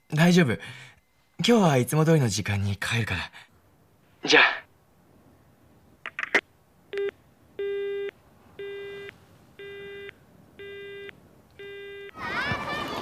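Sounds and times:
telephone busy tone beeps: 0:07.0 - 0:12.2.

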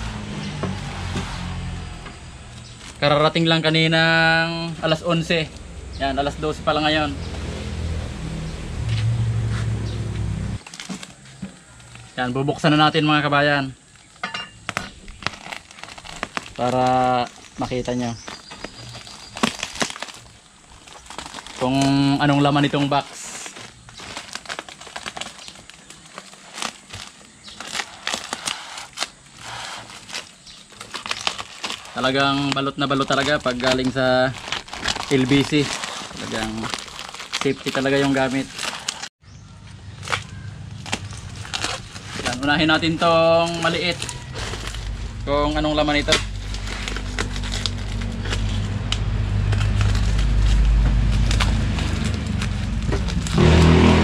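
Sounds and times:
plastic wrap crinkling: 0:02.4 - 0:05.6, 0:10.6 - 0:39.2, 0:39.8 - 0:54.0
low hum: 0:05.4 - 0:10.6, 0:43.0 - 0:54.0.

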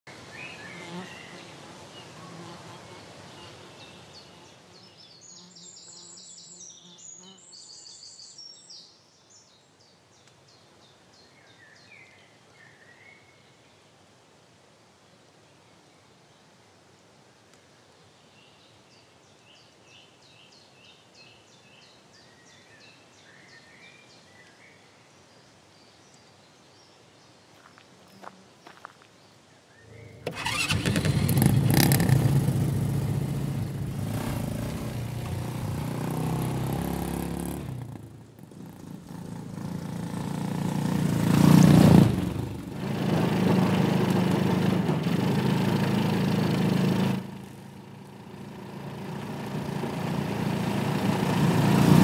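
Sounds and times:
steady outdoor hiss: 0:00.1 - 0:52.0
bee buzzing: 0:00.7 - 0:03.0
birds chirping: 0:27.6 - 0:52.0
outdoor hush: 0:27.8 - 0:52.0.

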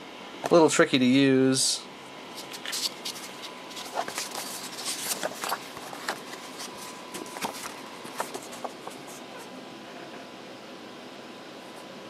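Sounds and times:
paper rustling and tapping: 0:02.4 - 0:09.2.

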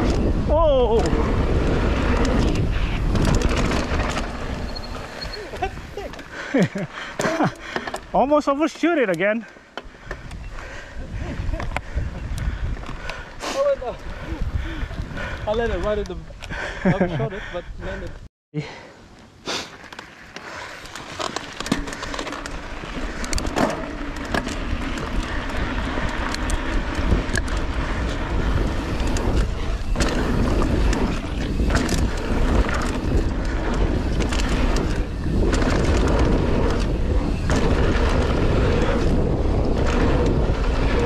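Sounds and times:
wind on microphone: 0:00.0 - 0:06.2, 0:10.0 - 0:18.2, 0:22.7 - 0:41.0
bike knocks and rattles: 0:00.0 - 0:08.3, 0:20.9 - 0:41.0
bike tyres rolling on dirt: 0:00.0 - 0:17.0, 0:18.7 - 0:41.0.

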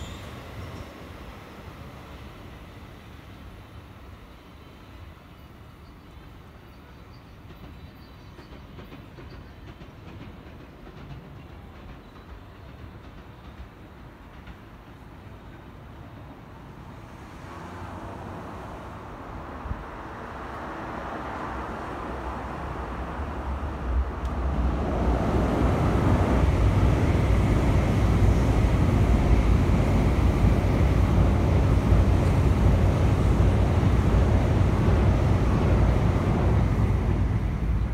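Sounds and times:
electric train rumbling: 0:00.0 - 0:37.9
wind-like rushing: 0:17.1 - 0:37.9.

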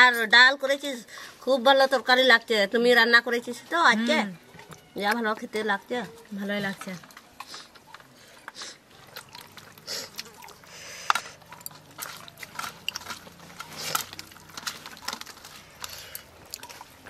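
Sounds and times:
wet chewing and lip smacks: 0:06.1 - 0:17.0
fingers squishing rice: 0:07.4 - 0:17.0.

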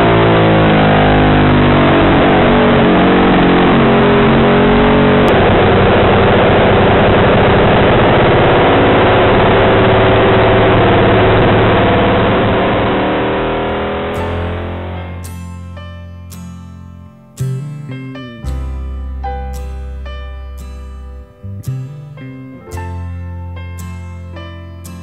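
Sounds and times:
motorcycle engine racing: 0:00.0 - 0:15.4.

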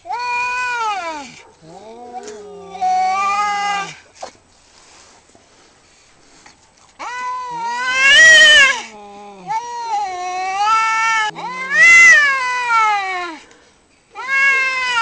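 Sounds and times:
cat yowling: 0:00.1 - 0:04.0, 0:07.0 - 0:13.4, 0:14.2 - 0:15.0.

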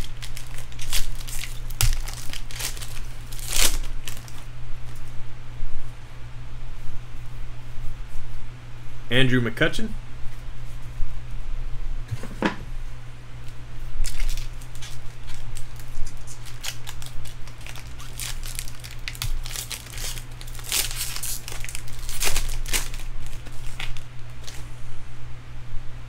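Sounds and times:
foil wrapper tearing and crinkling: 0:00.0 - 0:04.5, 0:14.0 - 0:24.6
steady low hum: 0:00.0 - 0:26.0.

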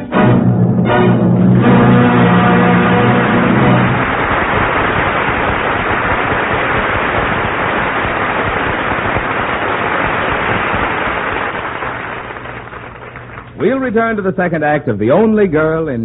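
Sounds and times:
audience applauding: 0:01.7 - 0:13.9.

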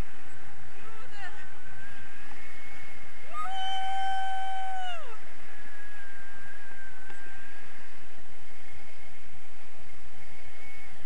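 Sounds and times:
wind on microphone: 0:00.0 - 0:11.0.

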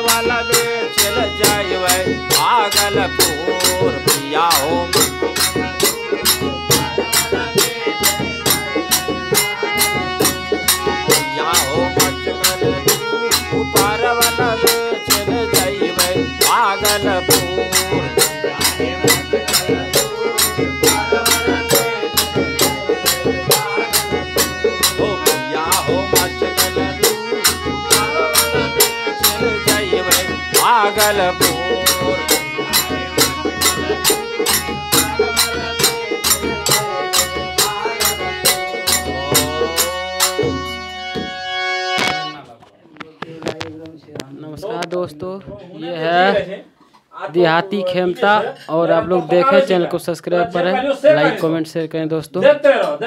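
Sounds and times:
men singing: 0:00.0 - 0:40.8, 0:47.4 - 0:51.6
dholak drum beat: 0:00.0 - 0:42.4
harmonium: 0:00.0 - 0:45.3.

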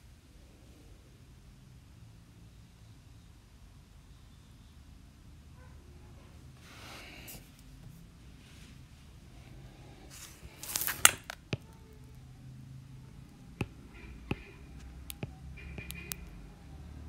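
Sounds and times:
stylus tapping tablet: 0:10.4 - 0:12.3, 0:12.9 - 0:16.5
stylus scraping tablet: 0:13.1 - 0:16.4
stylus scratching: 0:13.2 - 0:16.4.

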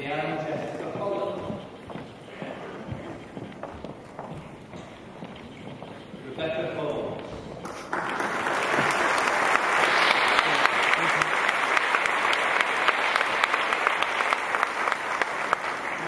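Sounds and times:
audience applause: 0:07.6 - 0:16.0
sharp nearby claps: 0:07.6 - 0:16.0.

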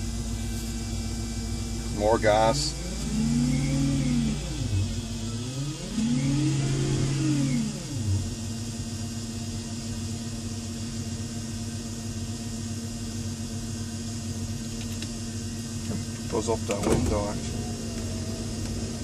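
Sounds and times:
steady electric hum: 0:00.0 - 0:19.0
electric motor whine revving: 0:00.4 - 0:08.5, 0:17.0 - 0:19.0.

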